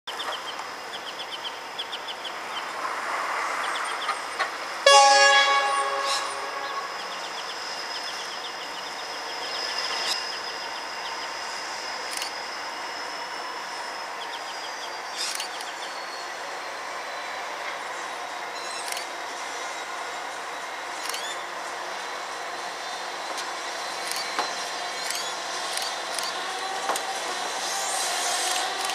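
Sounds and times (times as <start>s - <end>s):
rail-side background: 0.1s - 28.9s
locomotive horn blast: 4.8s - 7.3s.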